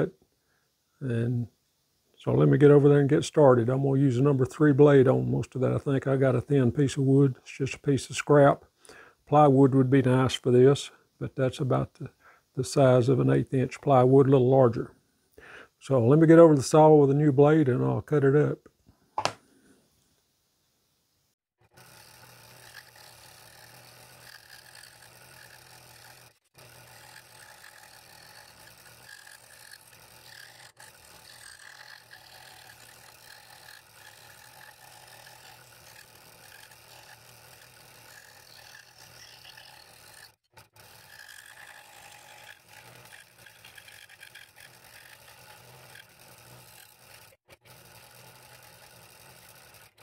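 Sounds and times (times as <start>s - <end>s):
scroll saw motor buzzing: 21.6s - 50.0s
saw blade rasping through wood: 21.8s - 50.0s.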